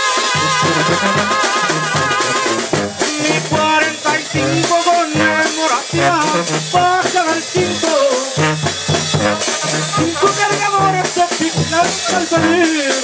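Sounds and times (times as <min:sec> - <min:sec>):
sousaphone bass line: 0:00.0 - 0:13.0
steady drum beat: 0:00.0 - 0:13.0
trumpets playing melody: 0:00.0 - 0:13.0.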